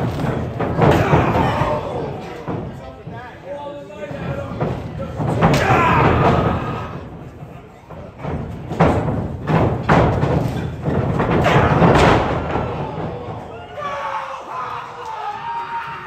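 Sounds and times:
wrestling strikes smacking: 0.0s - 2.8s, 4.6s - 7.1s, 8.1s - 13.5s
crowd shouting: 0.8s - 2.5s, 5.5s - 7.1s, 11.4s - 16.0s.

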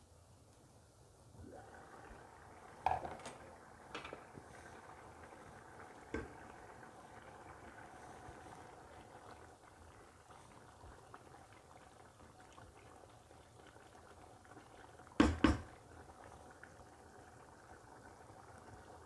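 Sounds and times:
pot boiling and bubbling: 1.2s - 19.0s.

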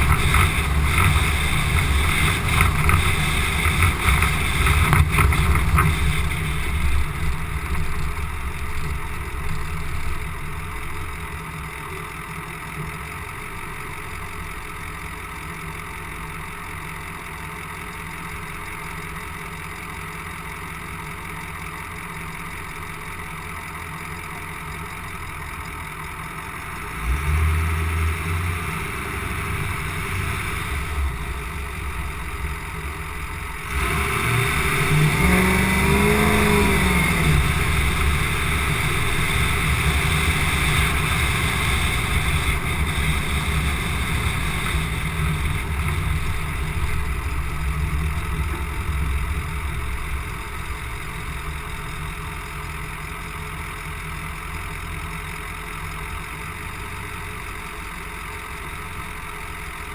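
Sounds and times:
diesel truck engine: 0.0s - 59.9s
wind and road noise: 0.0s - 59.9s.

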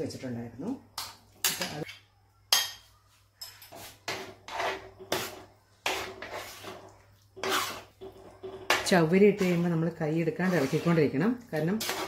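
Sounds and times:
spoon scraping glass bowl: 3.4s - 12.0s
spoon scraping steel pot: 3.4s - 12.0s.

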